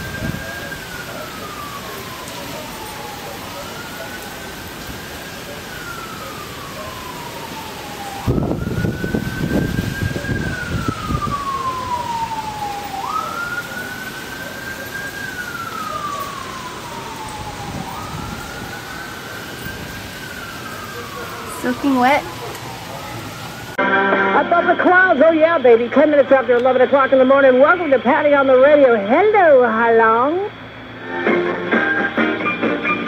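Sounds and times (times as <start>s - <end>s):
steady rain: 0.0s - 23.8s
siren wailing: 0.0s - 33.0s.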